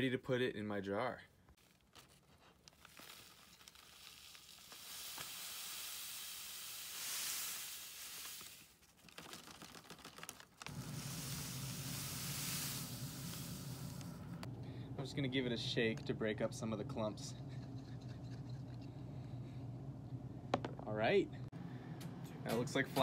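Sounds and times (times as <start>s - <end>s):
flour pouring into glass jar: 2.6s - 14.2s.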